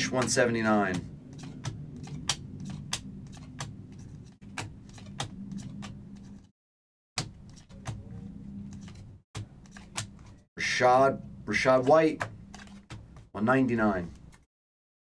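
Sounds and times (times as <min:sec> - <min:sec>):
trading cards clicking and snapping: 0:00.0 - 0:06.5, 0:07.2 - 0:10.4, 0:11.7 - 0:13.3
low steady hum: 0:07.4 - 0:13.2.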